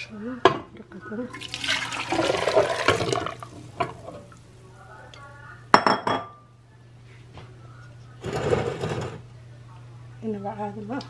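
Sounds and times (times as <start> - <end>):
broth pouring into pot: 1.3 - 4.4.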